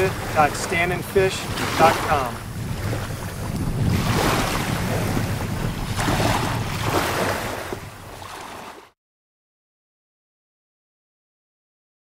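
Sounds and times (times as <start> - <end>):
wind rumbling on microphone: 0.0 - 8.9
small waves on sandy shore: 0.0 - 9.0.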